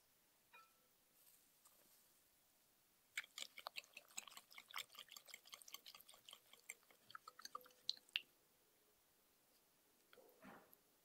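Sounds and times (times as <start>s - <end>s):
wet batter sounds: 3.1s - 8.3s.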